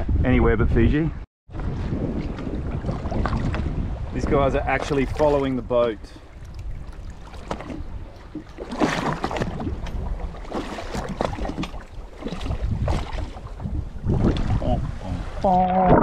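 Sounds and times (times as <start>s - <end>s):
wind buffeting microphone: 0.0s - 16.0s
water splashing along boat hull: 1.5s - 16.0s.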